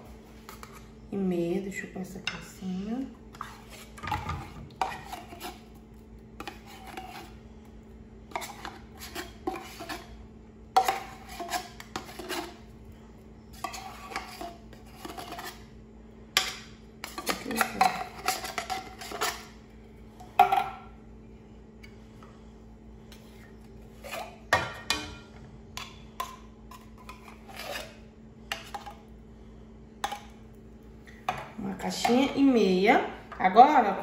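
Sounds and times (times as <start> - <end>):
metal spoon scraping in tin can: 10.8 - 12.6, 17.0 - 19.5, 27.0 - 28.0.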